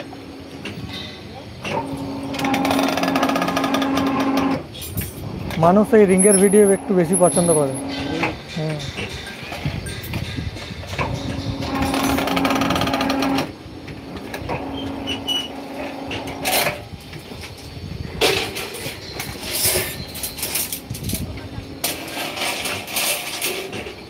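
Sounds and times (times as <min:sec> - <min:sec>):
bending machine motor hum: 0:01.5 - 0:09.8, 0:10.5 - 0:22.2.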